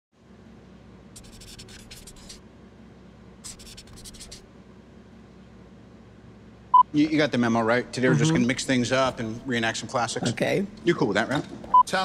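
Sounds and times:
faint low hum: 0.2s - 12.0s
pen scratching on paper: 1.2s - 2.4s, 3.4s - 4.4s.

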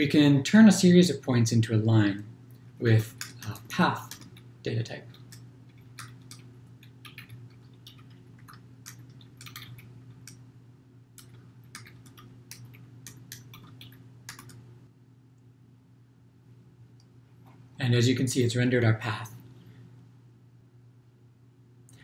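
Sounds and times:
steady low hum: 0.0s - 22.0s
keyboard typing clicks: 5.1s - 10.4s, 11.2s - 14.6s.

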